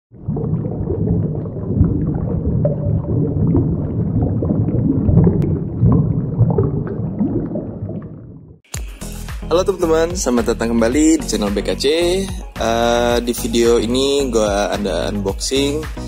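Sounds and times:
underwater gurgling rumble: 0.1 - 8.7
bubbling clicks: 0.2 - 8.6.

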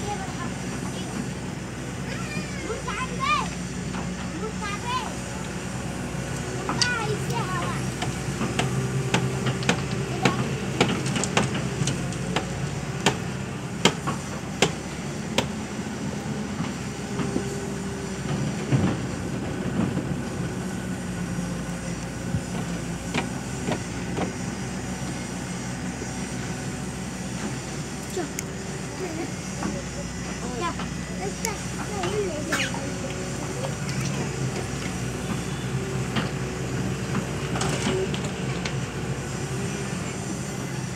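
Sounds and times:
excavator diesel engine running: 0.0 - 40.9.

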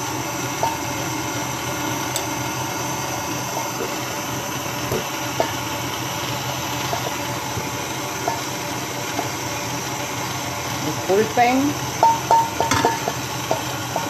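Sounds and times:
stand mixer whisking: 0.0 - 14.0.

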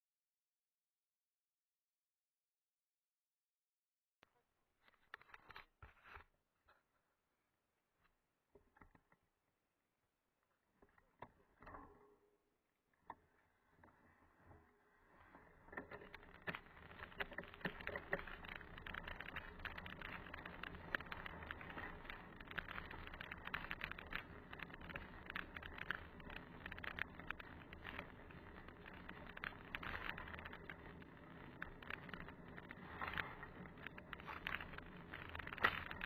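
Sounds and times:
bike rattling over bumps: 15.6 - 36.0
bike clicks: 15.7 - 36.0
bike tyres crunching on gravel: 15.8 - 36.0.

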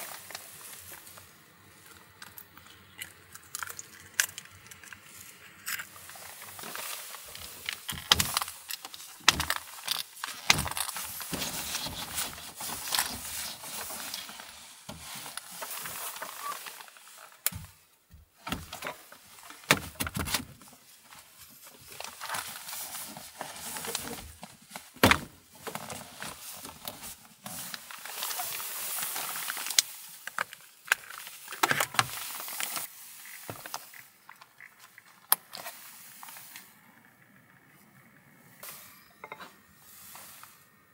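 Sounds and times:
gear and clothing handled: 5.8 - 36.6
steady hiss: 38.4 - 40.9.

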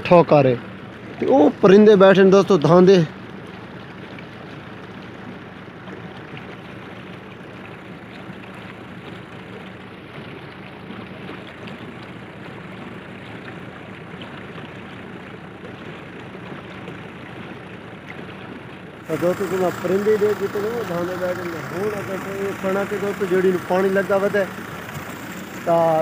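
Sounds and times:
tractor engine hum: 0.0 - 26.0
water flowing in channel: 0.0 - 26.0.

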